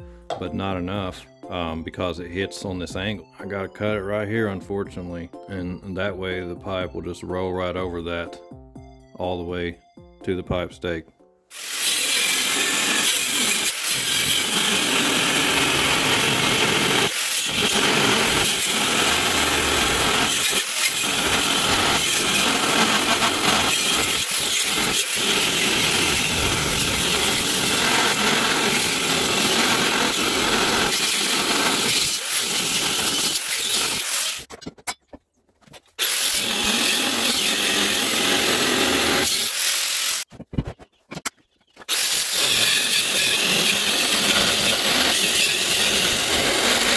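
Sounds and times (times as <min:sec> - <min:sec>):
angle grinder cutting steel: 0:11.5 - 0:34.5, 0:36.0 - 0:40.3, 0:41.9 - 0:46.9.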